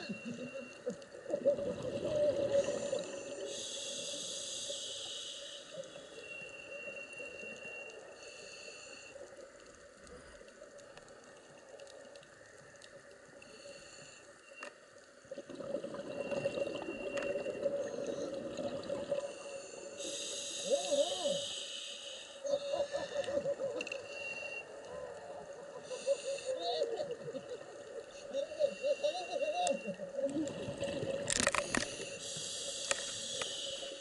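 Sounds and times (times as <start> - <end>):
low underwater gurgling: 0.0 - 3.6, 15.3 - 19.5, 24.5 - 31.9
exhaled bubbles rushing underwater: 1.2 - 3.5, 15.3 - 19.4, 30.3 - 31.5.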